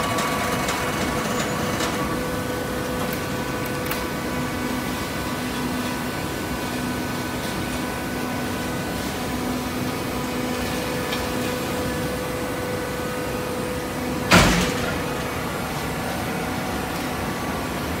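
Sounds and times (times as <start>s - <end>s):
baler mechanical hum and whine: 0.0s - 18.0s
loud machine clunk: 14.2s - 16.1s.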